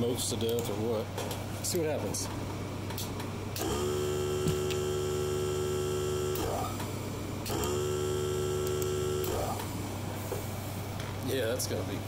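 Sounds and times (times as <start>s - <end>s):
air compressor motor humming: 3.4s - 11.0s.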